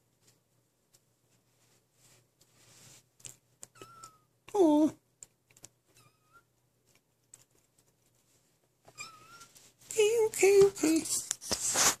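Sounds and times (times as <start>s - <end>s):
scuffling noise: 1.3s - 3.1s, 9.3s - 12.0s
kitten chirping: 3.6s - 4.3s, 5.9s - 6.5s, 8.9s - 9.5s
kitten meowing: 3.7s - 4.3s, 8.9s - 9.5s.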